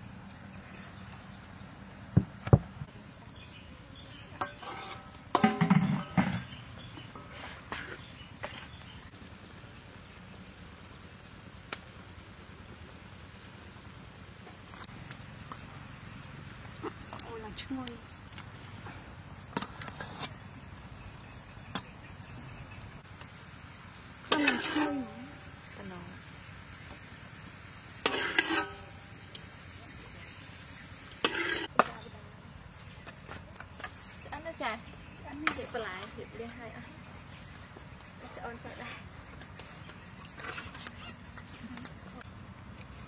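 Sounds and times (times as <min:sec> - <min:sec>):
metal pot lid and tray clanking: 0:04.4 - 0:06.6, 0:24.3 - 0:25.3, 0:28.1 - 0:28.9.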